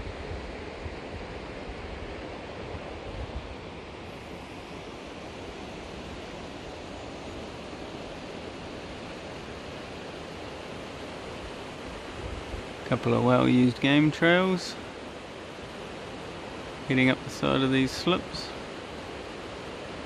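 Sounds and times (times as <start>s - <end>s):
rushing wind: 0.0s - 20.0s.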